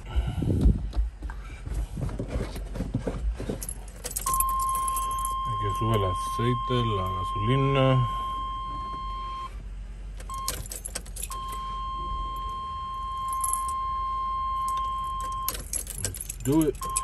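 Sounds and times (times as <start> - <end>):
keys jangling and clicking: 3.5 - 5.4, 10.3 - 11.6, 13.2 - 13.8, 14.7 - 17.0
dashboard warning tone: 4.2 - 9.6, 10.3 - 17.0.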